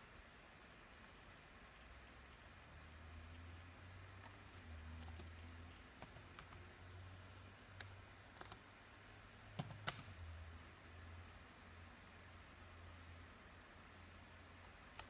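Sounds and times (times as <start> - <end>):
faint low hum: 0.0 - 15.0
keyboard keystrokes: 5.0 - 5.3, 6.0 - 6.6, 7.8 - 8.6, 9.6 - 10.1.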